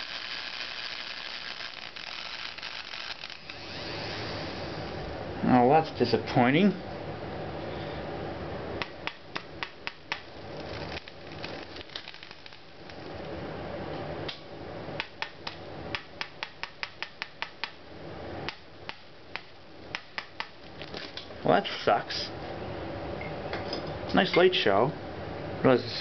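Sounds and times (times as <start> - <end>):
electrical snaps from motor arcing: 0.0 - 5.0, 8.8 - 13.4
steady background noise: 0.0 - 26.0.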